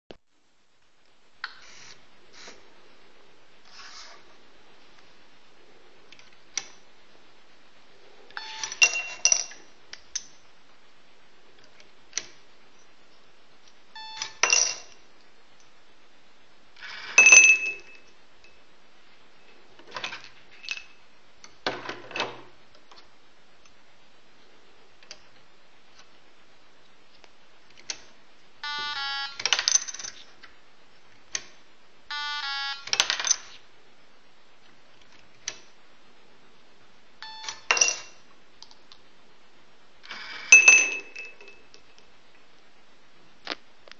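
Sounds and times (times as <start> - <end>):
short electronic beeps: 14.0 - 14.4, 37.2 - 37.6
plastic coins clattering: 29.4 - 30.4, 32.8 - 33.6.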